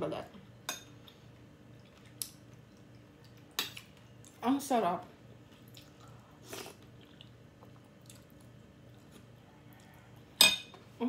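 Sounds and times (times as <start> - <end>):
person chewing soup: 1.0 - 4.4, 5.5 - 10.4.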